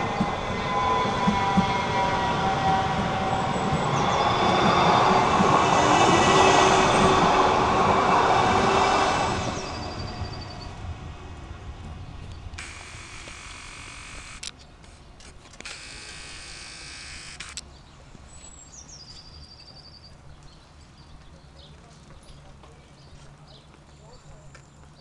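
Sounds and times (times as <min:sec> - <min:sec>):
faint street ambience: 0:00.0 - 0:25.0
camera zoom motor whirring: 0:12.6 - 0:14.5, 0:15.6 - 0:17.6.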